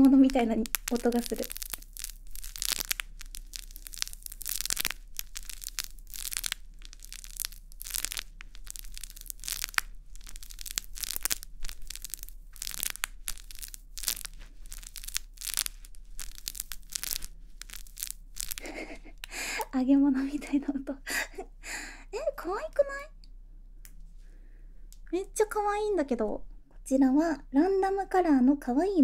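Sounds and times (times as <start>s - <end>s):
crinkly plastic crackling: 0.0s - 20.8s.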